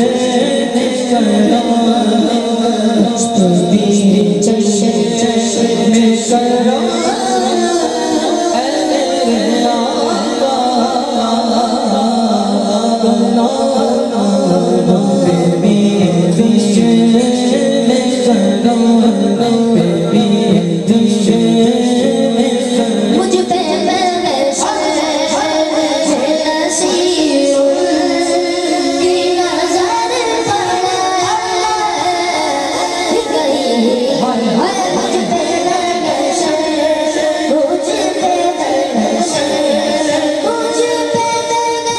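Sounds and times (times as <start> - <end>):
person singing devotional song: 0.0 - 41.9
steady held drone note: 0.0 - 41.9.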